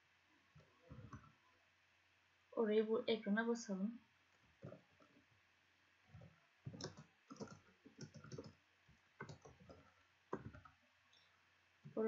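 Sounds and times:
keyboard typing: 4.6 - 4.8, 6.1 - 8.6, 9.2 - 10.8.

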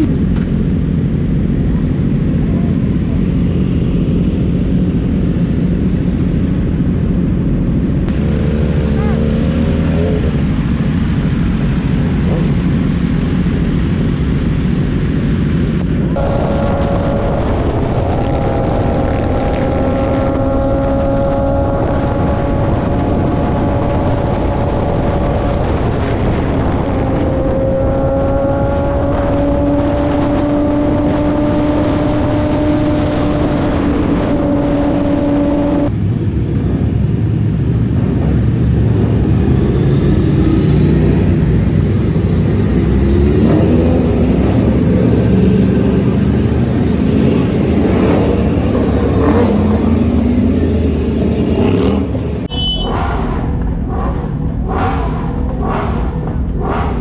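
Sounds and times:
motorcycle engine: 0.0 - 57.0
wind rush: 0.0 - 57.0.

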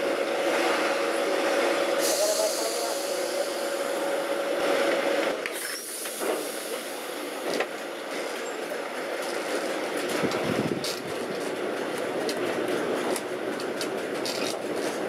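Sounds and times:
tram rattling rumble: 0.0 - 15.0
tram wheel squeal: 1.6 - 4.4.

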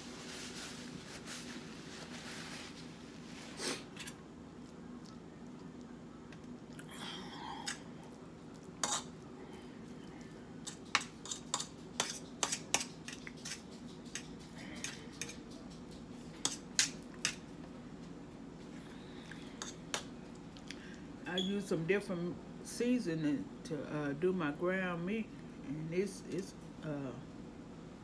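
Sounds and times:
fork scraping a platter: 8.8 - 9.2, 10.6 - 15.5.

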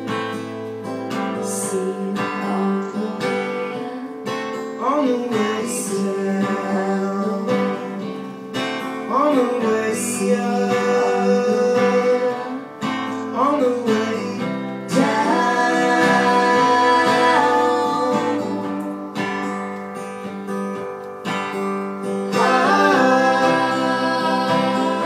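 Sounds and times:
acoustic guitars strumming: 0.0 - 25.0
wordless singing: 13.4 - 19.6, 22.2 - 25.0.

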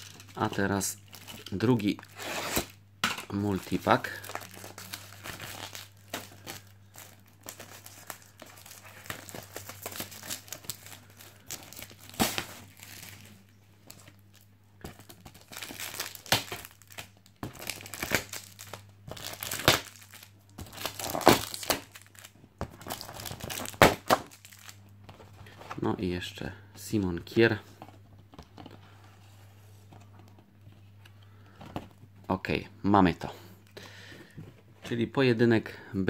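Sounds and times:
foil packets crinkling: 0.0 - 24.8
packets tearing off cardboard: 2.0 - 2.8, 4.0 - 13.3, 14.8 - 24.8.

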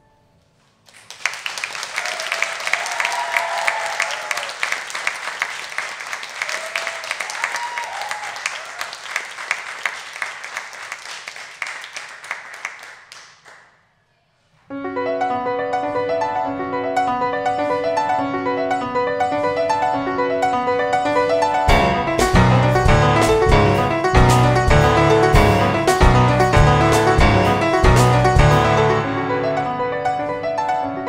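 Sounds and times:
audience applauding: 0.8 - 13.7
audience cheering: 1.1 - 12.9
grand piano playing: 14.7 - 31.0.

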